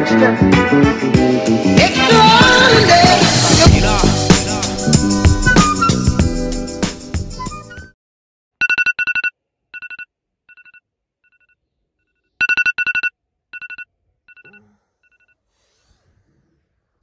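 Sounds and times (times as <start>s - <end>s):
phone alarm beeping: 8.6s - 11.6s, 12.4s - 15.4s.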